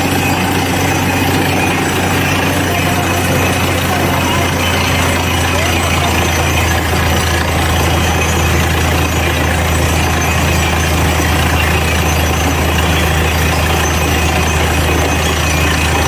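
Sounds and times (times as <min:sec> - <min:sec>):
drilling rig engine droning: 0:00.0 - 0:16.0.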